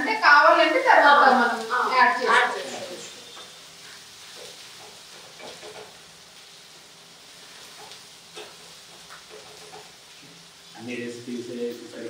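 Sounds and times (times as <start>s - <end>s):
food sizzling in a pan: 0.0s - 12.0s.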